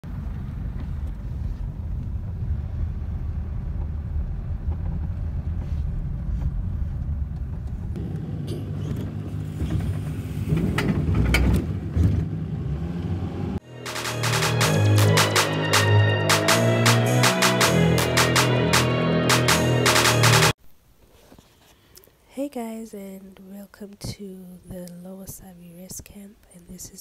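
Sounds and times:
car road and engine rumble: 0:00.0 - 0:13.6.

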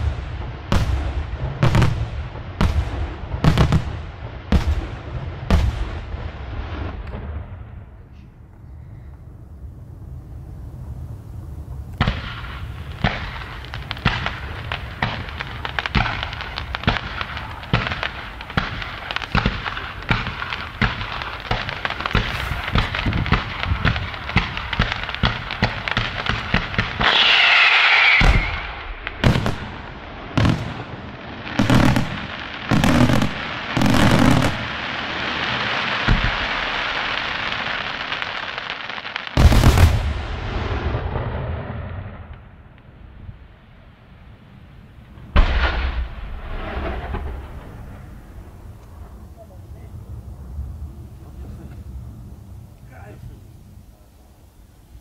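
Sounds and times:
heavy firework booms: 0:00.0 - 0:08.1, 0:09.6 - 0:53.9
firework crackling hiss: 0:10.4 - 0:55.0
firework falling whistle: 0:26.5 - 0:29.7.

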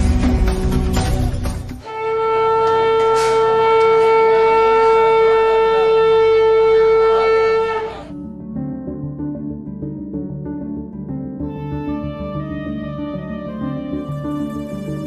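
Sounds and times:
conch shell blown: 0:01.8 - 0:08.2.

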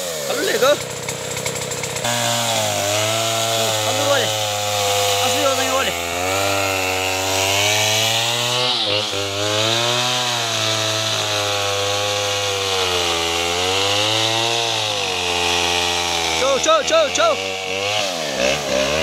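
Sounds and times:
chainsaw engine running: 0:00.0 - 0:19.0.

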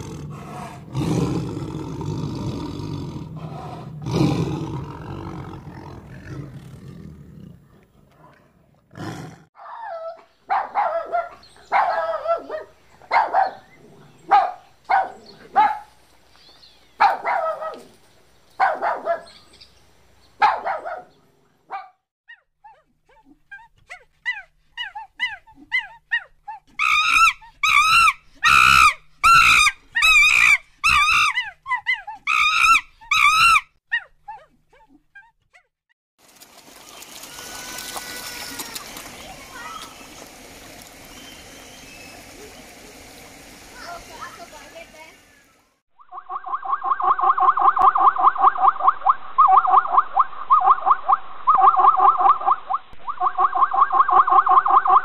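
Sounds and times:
yelping barks: 0:09.6 - 0:13.7, 0:14.3 - 0:15.9, 0:17.0 - 0:17.9, 0:18.6 - 0:19.4, 0:20.4 - 0:21.1
quavering warbling animal calls: 0:46.0 - 0:55.0.

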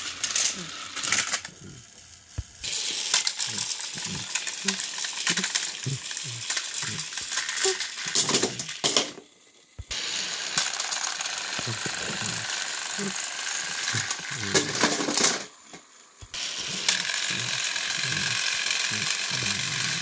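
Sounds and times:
toy train clicking and rattling: 0:00.0 - 0:20.0.

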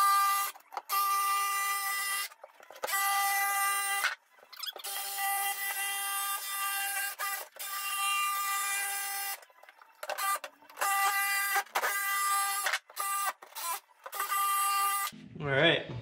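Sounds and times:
jigsaw cutting plywood: 0:00.0 - 0:09.4, 0:10.0 - 0:15.1.

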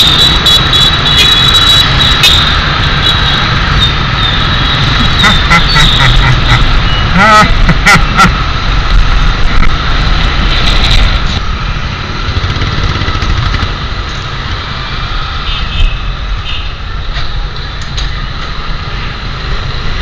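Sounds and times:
wind rumble on microphone: 0:08.7 - 0:11.6
motorcycle engine running: 0:12.2 - 0:14.1.

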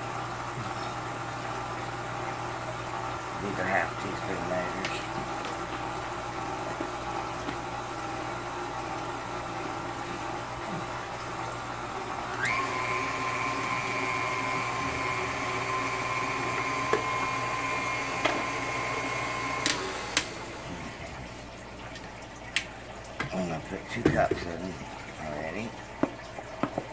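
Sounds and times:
stand mixer motor whine: 0:00.0 - 0:21.2.

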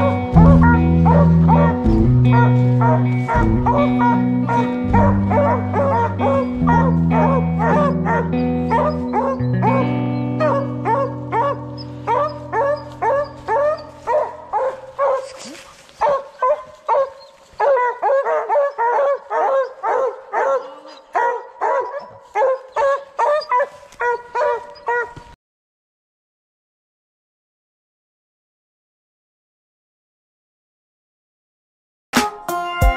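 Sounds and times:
low sustained music chord: 0:00.0 - 0:15.4
hound barking: 0:00.0 - 0:25.4.

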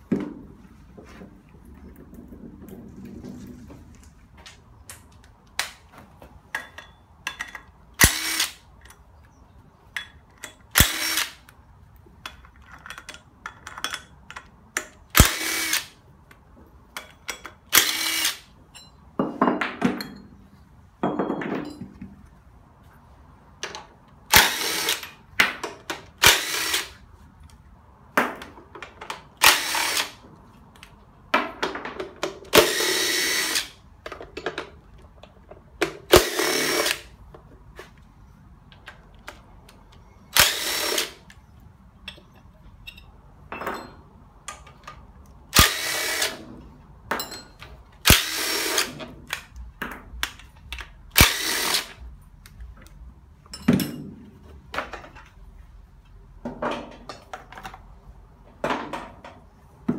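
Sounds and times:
cordless drill spinning bolts: 0:08.0 - 0:08.6, 0:10.7 - 0:11.5, 0:15.2 - 0:16.0, 0:17.7 - 0:18.5, 0:24.3 - 0:25.2, 0:26.2 - 0:27.0, 0:29.4 - 0:30.2, 0:32.6 - 0:33.8, 0:36.1 - 0:37.1, 0:40.4 - 0:41.3, 0:45.6 - 0:46.4, 0:48.0 - 0:49.0, 0:51.2 - 0:52.0.

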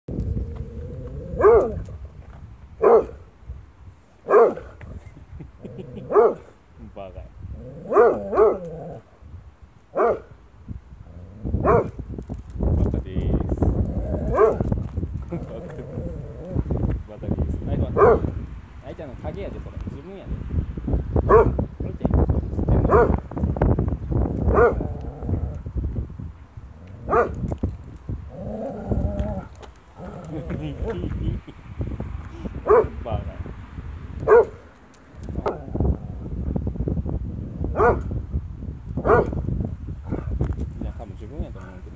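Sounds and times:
dog growling: 0:00.2 - 0:01.8, 0:07.5 - 0:09.1, 0:13.8 - 0:14.6, 0:15.4 - 0:16.7, 0:24.6 - 0:25.6, 0:28.3 - 0:31.0
dog barking: 0:01.4 - 0:01.8, 0:02.8 - 0:03.2, 0:04.2 - 0:04.8, 0:06.0 - 0:06.5, 0:07.9 - 0:08.7, 0:10.0 - 0:10.3, 0:11.6 - 0:12.0, 0:14.3 - 0:14.6, 0:18.0 - 0:18.3, 0:21.3 - 0:21.6, 0:22.9 - 0:23.2, 0:24.5 - 0:24.8, 0:27.1 - 0:27.3, 0:32.6 - 0:33.0, 0:34.2 - 0:34.6, 0:37.8 - 0:38.1, 0:39.0 - 0:39.4.

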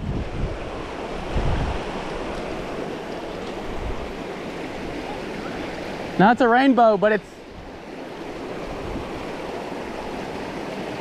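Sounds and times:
stream rushing over stones: 0:00.0 - 0:11.0.

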